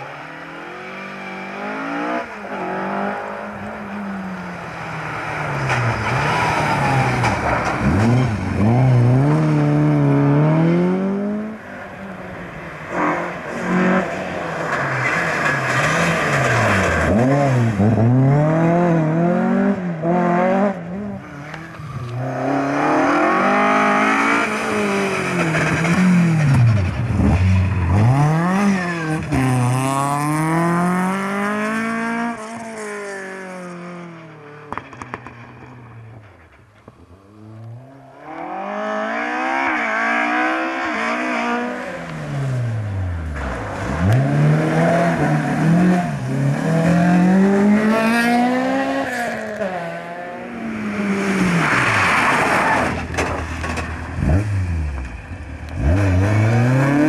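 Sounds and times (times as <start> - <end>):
rally car engines revving: 0.0 - 57.0.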